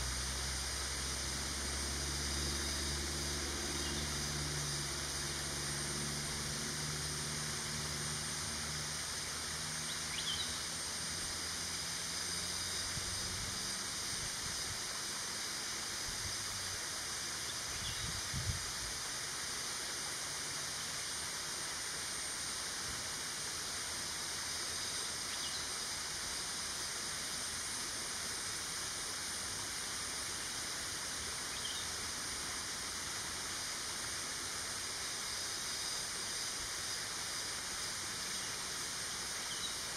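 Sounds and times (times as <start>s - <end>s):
low engine hum: 0.0s - 14.0s
faint high-pitched drone: 0.0s - 18.7s
forest ambience hiss: 0.0s - 39.9s.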